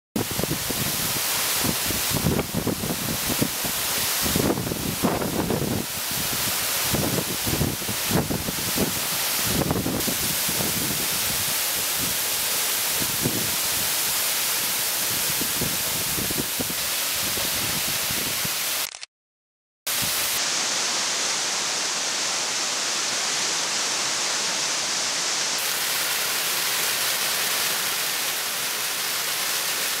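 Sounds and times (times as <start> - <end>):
waterfall rushing: 0.2 - 18.8, 19.9 - 30.0.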